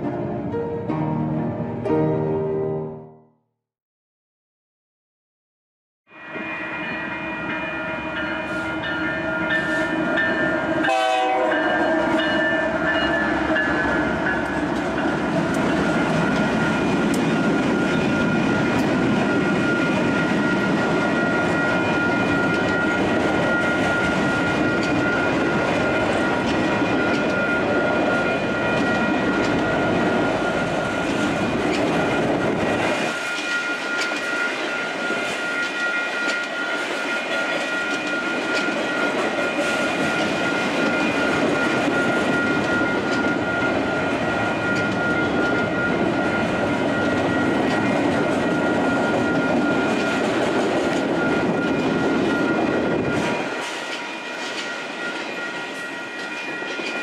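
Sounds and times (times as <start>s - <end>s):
crossing bell dinging: 6.1s - 57.0s
train horn chord: 7.7s - 14.9s
train cars clacking over rail joints: 47.0s - 57.0s.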